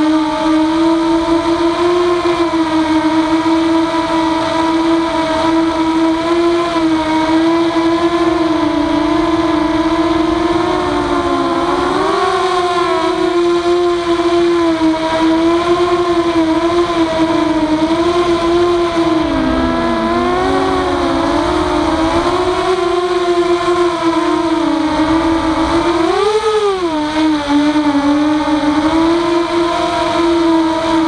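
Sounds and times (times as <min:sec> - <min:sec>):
quadcopter motors whining: 0:00.0 - 0:31.0.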